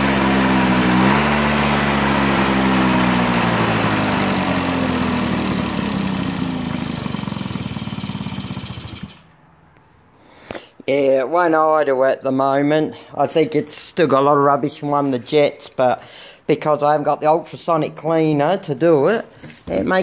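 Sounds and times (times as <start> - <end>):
two-stroke scooter engine stalling: 0.0 - 9.3.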